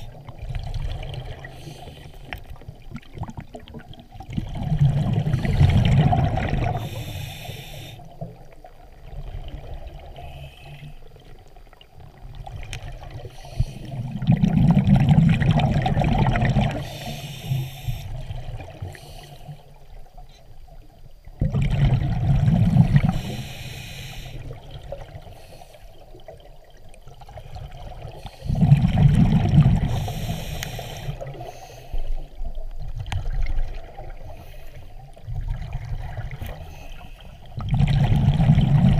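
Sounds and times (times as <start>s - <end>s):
exhaled bubbles rushing: 0.0s - 1.6s, 2.6s - 7.0s, 13.9s - 16.9s, 21.2s - 23.3s, 26.2s - 30.2s, 35.2s - 36.6s, 37.5s - 38.9s
regulator hiss: 6.8s - 8.2s, 16.8s - 19.9s, 22.7s - 24.6s, 29.9s - 32.3s.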